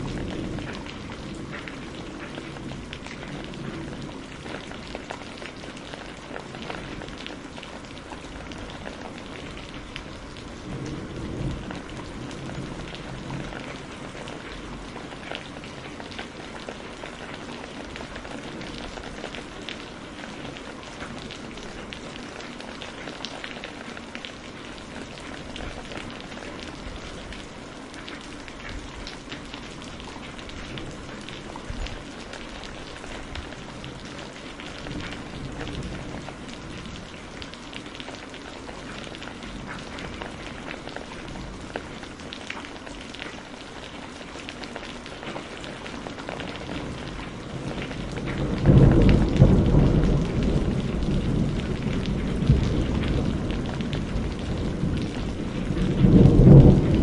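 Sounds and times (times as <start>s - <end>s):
loud low rumble of thunder: 0.0s - 5.1s, 8.6s - 15.9s, 46.7s - 57.0s
steady rain drops: 0.0s - 57.0s.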